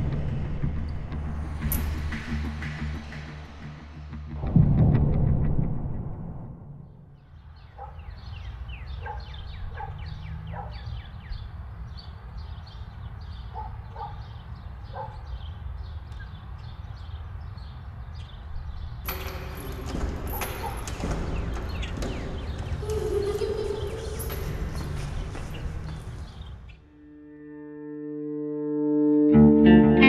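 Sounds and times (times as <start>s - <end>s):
high animal calls: 22.6s - 25.7s.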